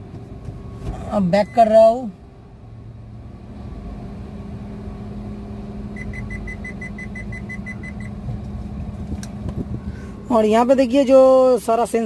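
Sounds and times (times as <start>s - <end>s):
car engine idling: 0.0s - 12.0s
reversing warning beeps: 5.9s - 8.2s.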